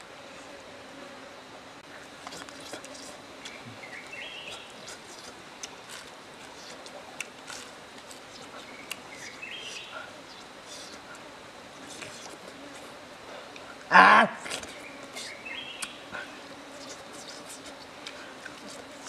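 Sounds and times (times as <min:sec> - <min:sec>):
outdoor background noise: 0:00.0 - 0:19.0
chicken being torn and chewed: 0:02.2 - 0:03.6, 0:04.5 - 0:09.4, 0:16.8 - 0:19.0
bird calling: 0:03.1 - 0:06.9, 0:08.1 - 0:11.2, 0:14.6 - 0:17.7.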